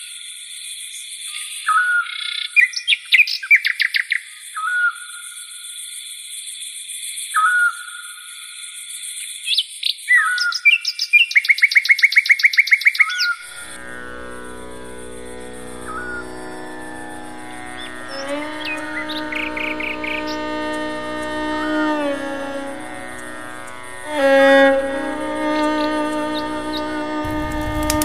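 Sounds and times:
steady high hiss: 0:13.4 - 0:28.0.

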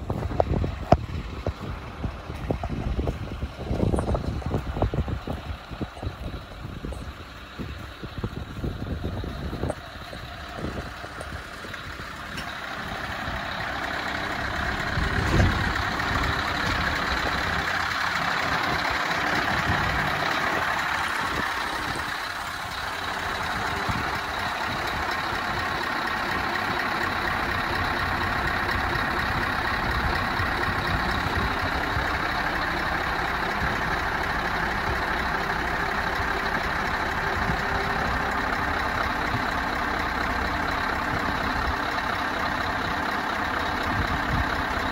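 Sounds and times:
diesel engine idling: 0:00.0 - 0:44.9.

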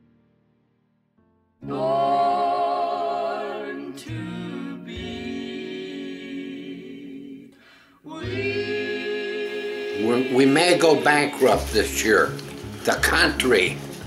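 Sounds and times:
voices singing in harmony: 0:01.6 - 0:12.5.

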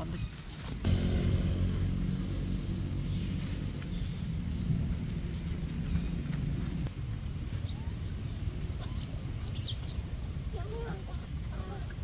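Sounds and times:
bird chirping: 0:00.2 - 0:10.1
steady low hum: 0:00.8 - 0:07.6.

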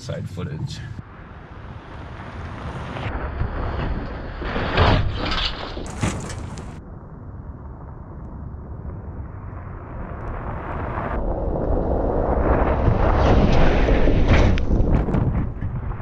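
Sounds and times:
tyres on dirt track: 0:01.0 - 0:06.8.

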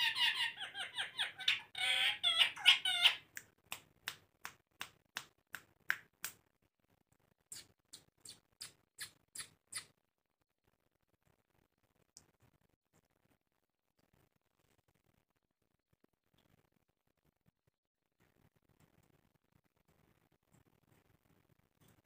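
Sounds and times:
parakeets chattering: 0:00.0 - 0:03.3.

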